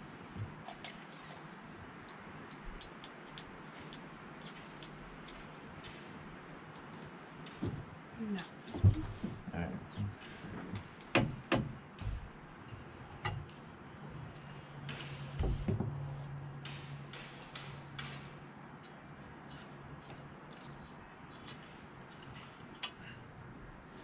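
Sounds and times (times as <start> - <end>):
low thump: 15.4 - 16.0.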